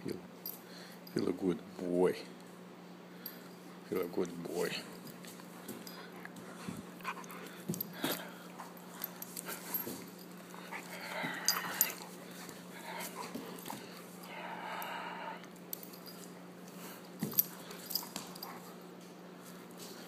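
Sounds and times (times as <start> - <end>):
dog panting and snuffling: 5.3 - 14.2.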